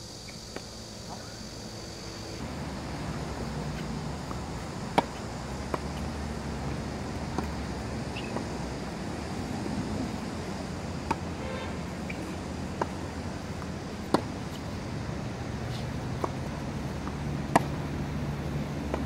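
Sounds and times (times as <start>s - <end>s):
low rumble of wind: 0.8s - 19.0s
tennis ball bouncing: 2.8s - 9.0s, 10.9s - 11.3s, 11.9s - 14.8s, 15.6s - 17.9s.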